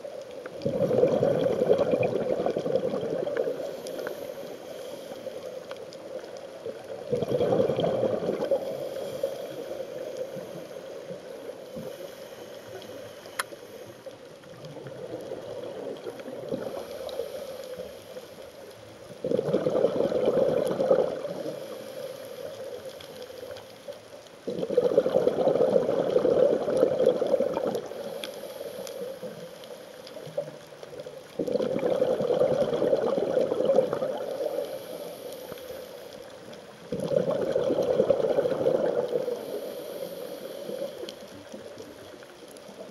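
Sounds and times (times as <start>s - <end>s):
exhaled bubbles rushing: 0.6s - 3.8s, 6.6s - 8.9s, 19.2s - 21.5s, 24.5s - 28.0s, 31.4s - 34.5s, 36.9s - 39.4s.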